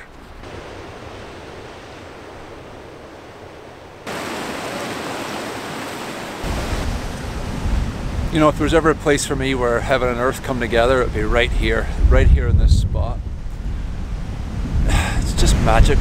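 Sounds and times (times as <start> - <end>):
waves breaking over rocks: 0.0 - 11.0.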